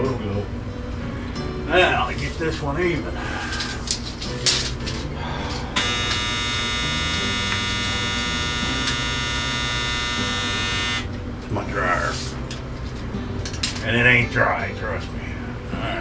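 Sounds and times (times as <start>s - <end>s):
dryer buzzer: 5.7s - 11.1s.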